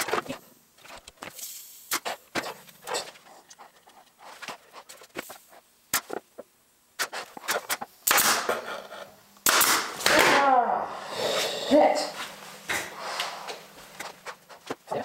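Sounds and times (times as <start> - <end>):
noisy handling sounds: 0.0 - 10.3
nail gun firing: 8.0 - 8.5, 9.4 - 10.4.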